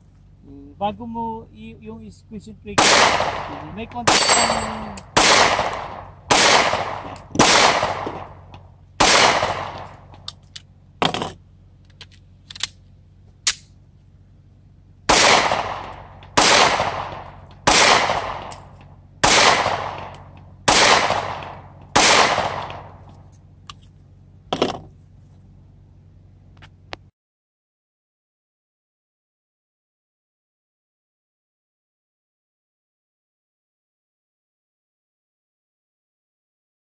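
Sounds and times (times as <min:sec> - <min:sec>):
pistol shots: 0:02.8 - 0:10.2, 0:15.1 - 0:23.0.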